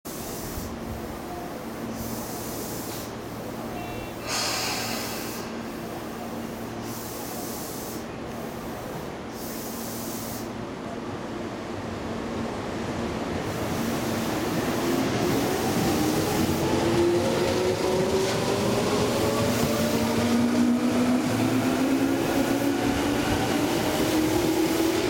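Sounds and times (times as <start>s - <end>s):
hiss: 0.1s - 10.6s, 13.5s - 16.8s
pneumatic air blast: 2.0s - 3.2s, 4.2s - 5.7s, 9.3s - 10.6s.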